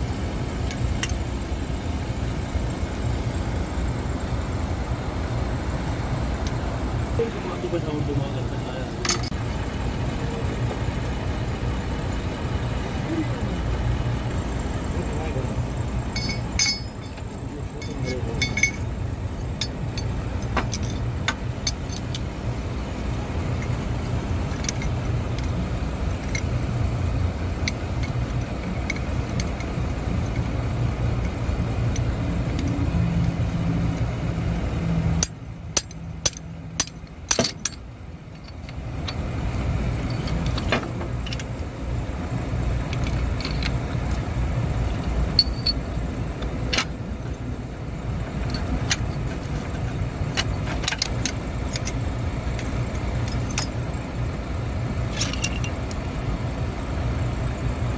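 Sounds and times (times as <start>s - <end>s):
low engine rumble: 0.0s - 57.9s
metal tools clinking: 9.0s - 9.4s, 15.0s - 22.3s, 23.5s - 26.8s, 27.5s - 30.6s, 35.2s - 41.6s, 42.8s - 44.2s, 44.9s - 47.4s, 48.3s - 54.0s, 55.0s - 56.0s.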